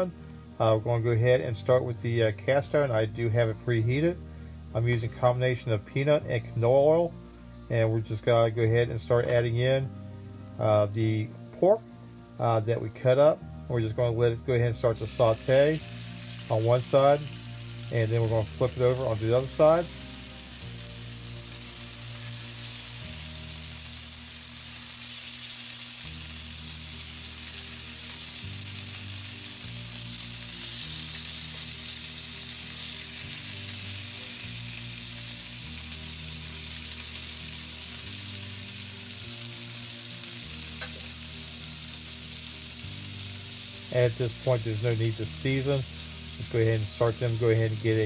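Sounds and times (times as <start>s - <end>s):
soft background music: 0.0s - 48.0s
pork sizzling in oil: 14.8s - 48.0s.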